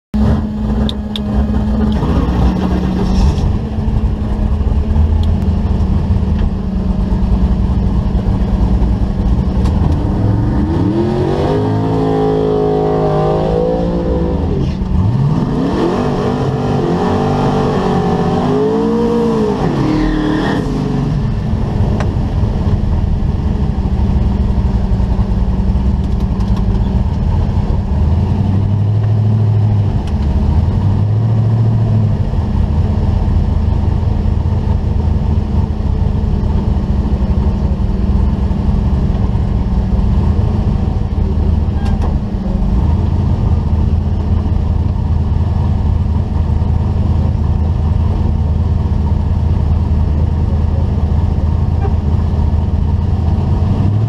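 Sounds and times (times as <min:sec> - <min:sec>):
car engine idling: 0:00.2 - 0:12.5, 0:20.8 - 0:54.0
engine revving: 0:00.2 - 0:33.9, 0:51.5 - 0:54.0.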